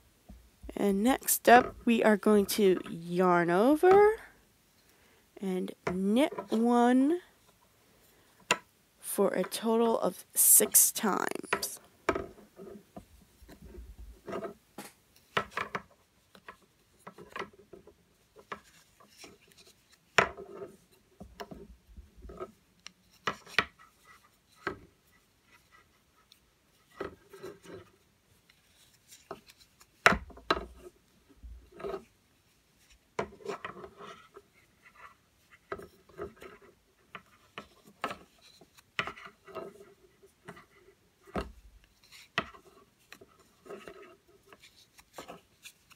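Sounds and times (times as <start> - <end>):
yarn rubbing on needles: 0.7 - 4.1.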